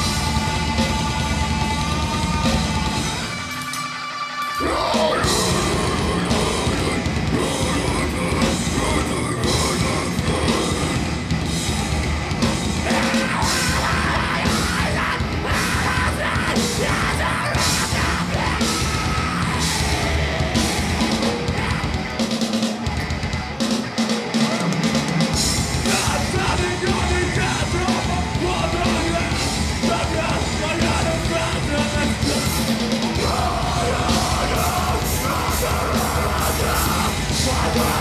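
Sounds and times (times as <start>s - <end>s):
live metal band playing: 0.0s - 38.0s
screamed vocals: 4.5s - 11.1s, 12.8s - 22.2s, 25.9s - 38.0s.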